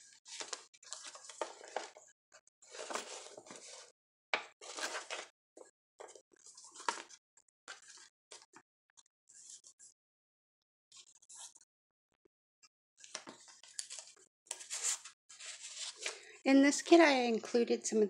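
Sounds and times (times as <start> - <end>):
paper pages rustling: 0.0 - 2.0, 2.7 - 3.9, 4.6 - 5.3, 6.0 - 8.4, 13.0 - 16.2.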